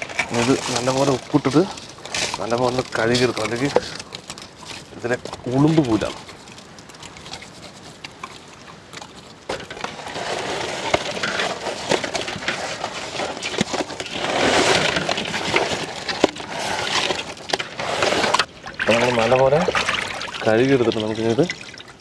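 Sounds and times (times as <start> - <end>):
coarse salt crunching: 0.0 - 22.0.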